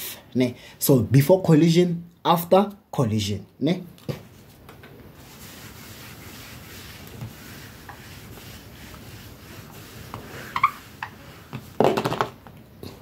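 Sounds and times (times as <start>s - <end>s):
eraser rubbing on whiteboard: 5.2s - 11.8s.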